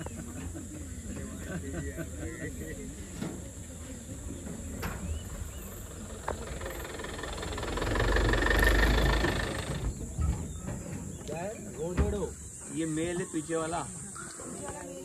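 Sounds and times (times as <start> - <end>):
vehicle engine running: 2.6 - 10.6.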